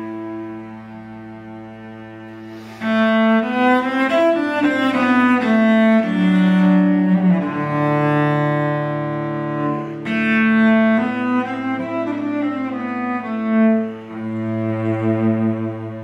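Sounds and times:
bowed cello: 0.0 - 16.0.

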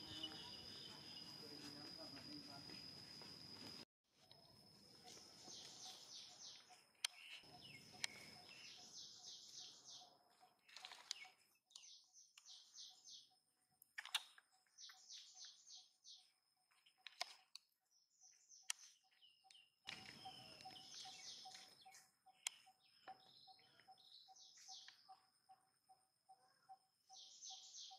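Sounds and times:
bird singing faintly: 0.0 - 27.9
sharp clicks: 13.8 - 14.5.

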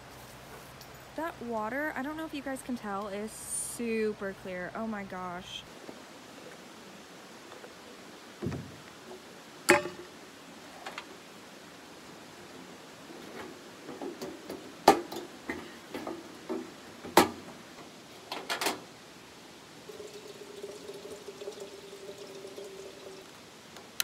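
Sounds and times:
faint steady hum: 0.0 - 24.0
camp stove knocks and clanks: 9.7 - 10.1, 13.4 - 17.5, 18.3 - 18.8.

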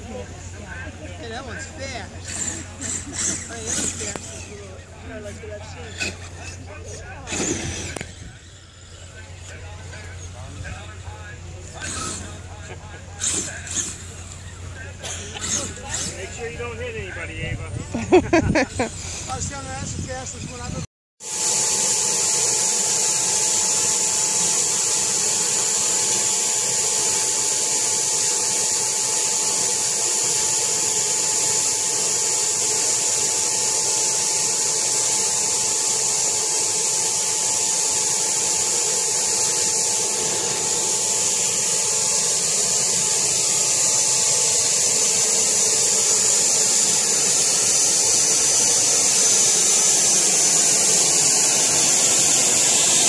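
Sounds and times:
electric motor whine: 1.3 - 9.7, 11.6 - 12.6, 21.2 - 53.0.

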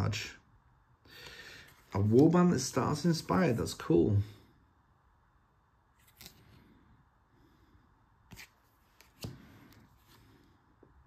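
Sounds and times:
cardboard cards rustling: 6.0 - 6.6, 8.3 - 10.3.

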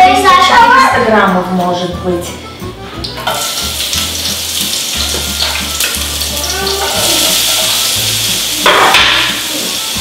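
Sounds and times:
onion sizzling in a pan: 3.0 - 10.0.

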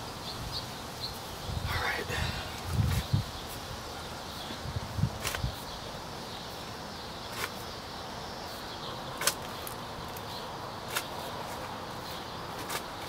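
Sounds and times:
shovel scraping into soil: 5.2 - 5.6, 7.3 - 7.7, 12.6 - 13.0.

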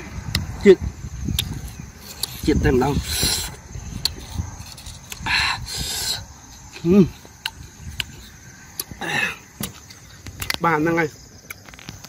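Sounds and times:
hissing sucks of breath: 5.1 - 6.3.

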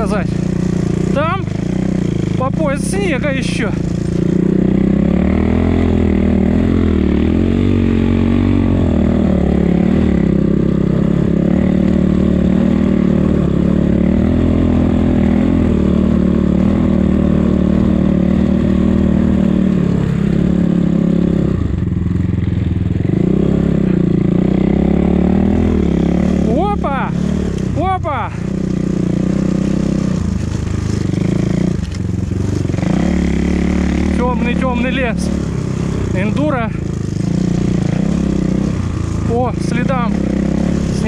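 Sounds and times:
motorcycle engine revving: 0.0 - 41.0.

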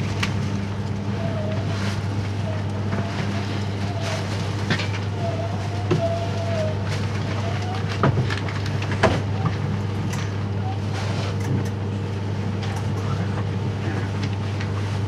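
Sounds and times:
train cabin hum and whine: 0.0 - 15.0.

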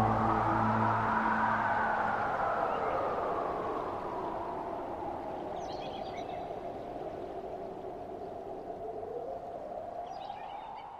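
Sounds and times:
wind-like whooshing: 0.0 - 7.8.

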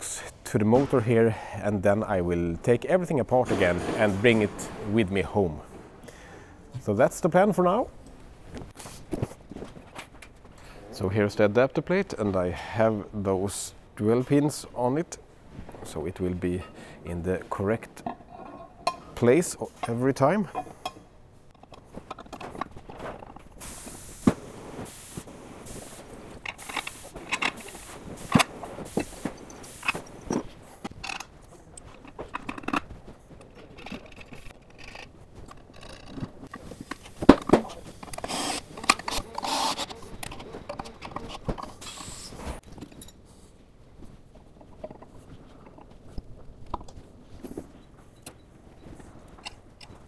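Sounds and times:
metal clinks and scrapes: 18.0 - 23.4.

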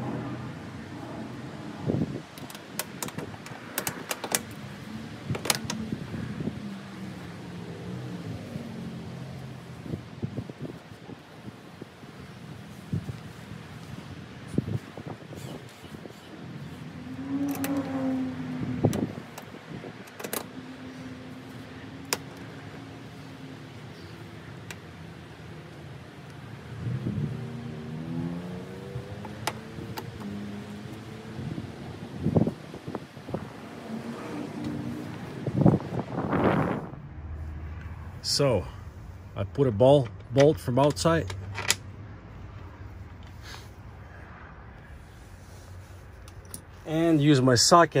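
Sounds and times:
metal clicks and knocks: 2.3 - 4.6.

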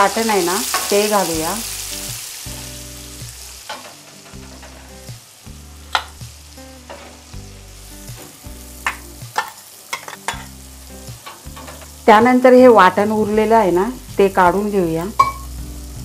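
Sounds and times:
oil sizzling in a pan: 0.0 - 16.0
spoon clinking against metal: 15.2 - 15.5.

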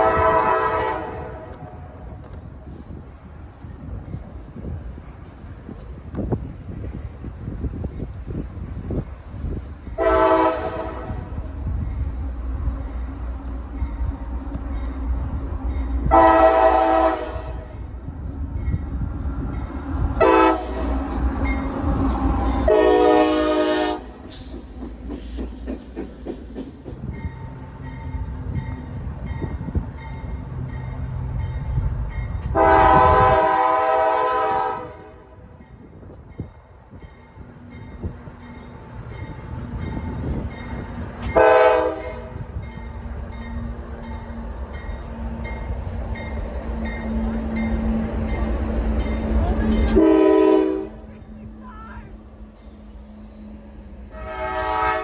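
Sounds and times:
train horn blasts: 0.0 - 2.0, 10.0 - 11.5, 16.0 - 17.9, 20.2 - 24.2, 32.4 - 35.5, 41.2 - 42.5, 47.8 - 55.0
low rumble of locomotives: 0.0 - 55.0.

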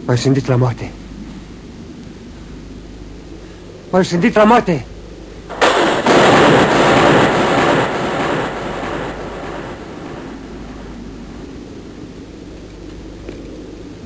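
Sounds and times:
steady hiss like rain: 0.0 - 14.0
thunderclap: 5.5 - 12.4.

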